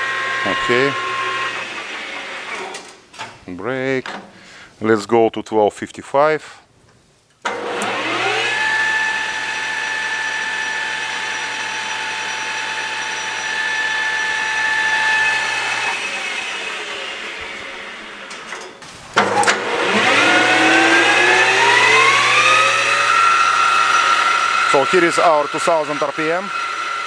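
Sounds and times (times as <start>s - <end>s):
lathe running with whine: 0.0s - 2.7s, 7.5s - 18.4s, 19.2s - 27.0s.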